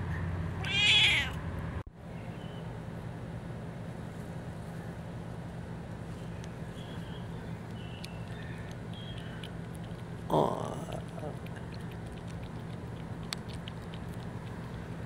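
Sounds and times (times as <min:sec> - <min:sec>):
low mechanical hum: 0:00.0 - 0:15.0
cat lapping milk: 0:07.6 - 0:15.0.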